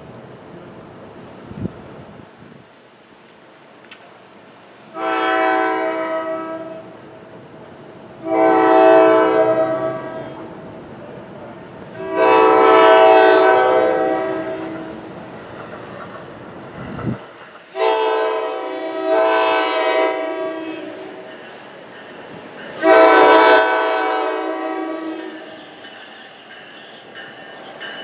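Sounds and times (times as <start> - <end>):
train air horn blasts: 4.9 - 6.9, 8.2 - 10.5, 12.0 - 15.1, 17.8 - 21.3, 22.8 - 25.8.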